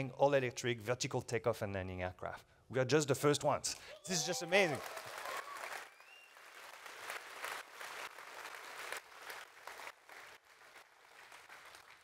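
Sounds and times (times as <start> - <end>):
audience applauding: 4.0 - 12.0.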